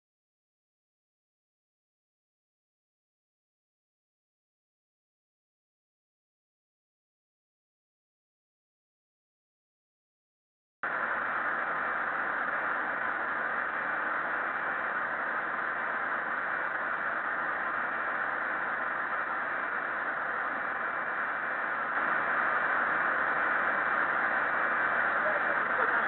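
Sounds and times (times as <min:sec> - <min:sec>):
cockpit airflow hiss: 0:10.8 - 0:26.0
faint steady tones: 0:10.8 - 0:26.0.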